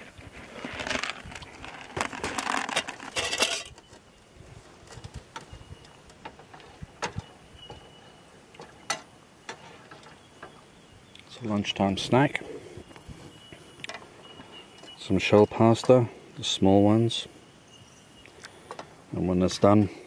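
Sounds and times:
plastic packet rustling: 0.4 - 3.7.

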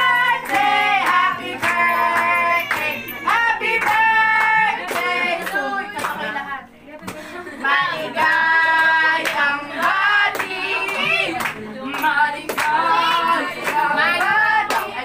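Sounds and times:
hand claps: 0.4 - 6.2, 8.2 - 15.0.

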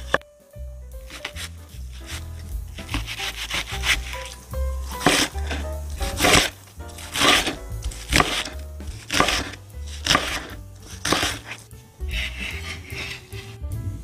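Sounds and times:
background music: 0.0 - 14.0
knife chopping on wooden board: 2.8 - 13.5.

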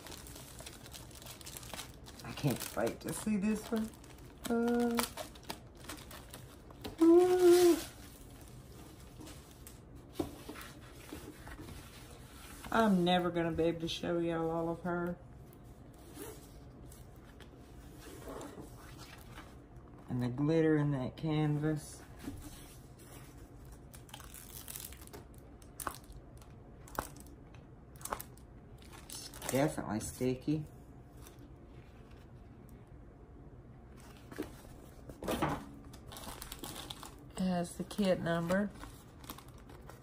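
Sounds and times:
sharp plastic crackles: 0.0 - 8.5, 23.7 - 29.8
plastic film crinkling: 0.0 - 9.9, 23.6 - 29.8, 35.8 - 40.0
paper wrapping rustling: 0.0 - 12.9, 34.0 - 40.0.

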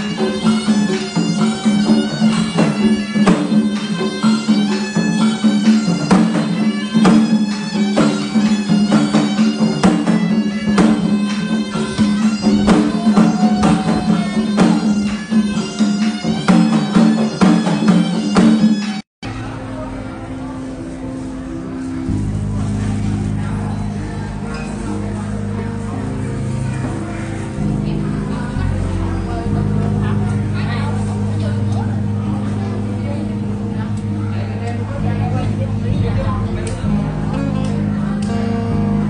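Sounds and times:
hand drums beating: 0.0 - 19.0
reedy wind instrument melody: 0.0 - 39.0.

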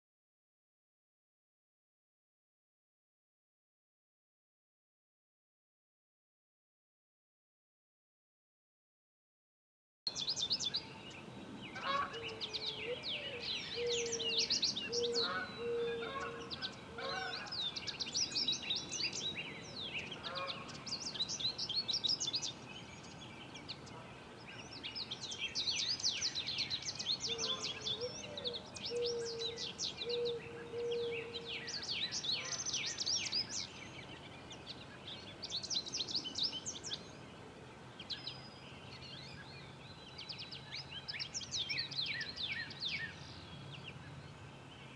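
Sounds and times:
birds chirping and twittering: 10.1 - 44.9
low bird call: 11.7 - 18.0, 27.2 - 33.6.

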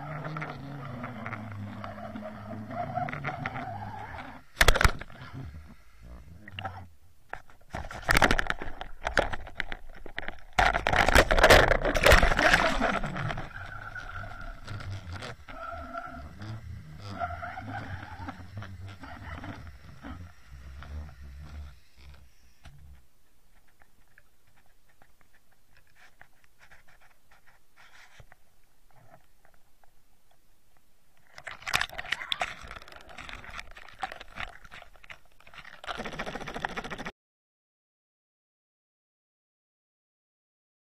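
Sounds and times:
faint steady hum: 0.0 - 37.1
underwater clicks and knocks: 6.5 - 15.5.

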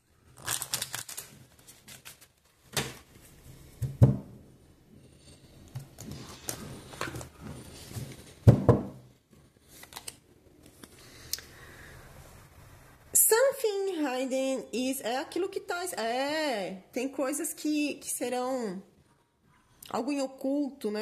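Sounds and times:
cards shuffled by hand: 0.4 - 2.4.

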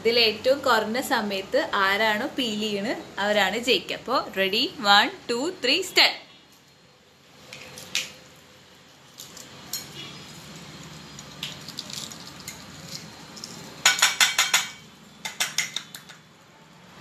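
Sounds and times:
eggshell cracking and crackling: 7.4 - 8.2, 9.0 - 14.5.

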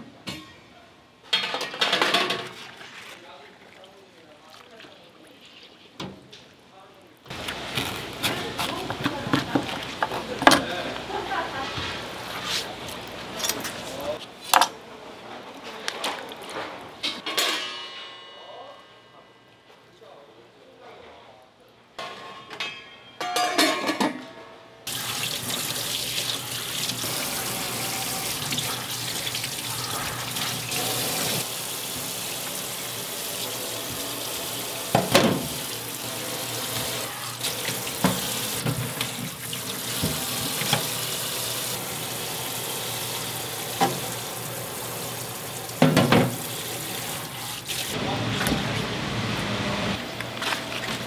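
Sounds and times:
tap water running into sink: 24.9 - 48.6.

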